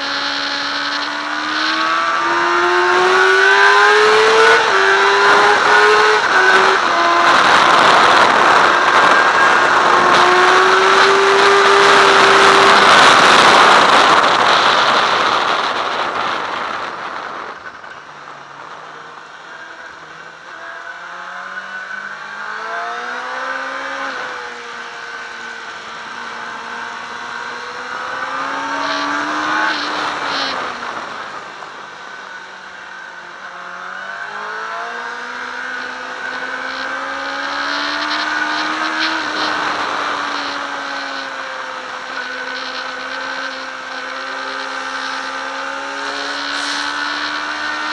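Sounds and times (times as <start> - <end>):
motorcycle engine revving: 0.0 - 47.9
wind rush on microphone: 4.0 - 19.2.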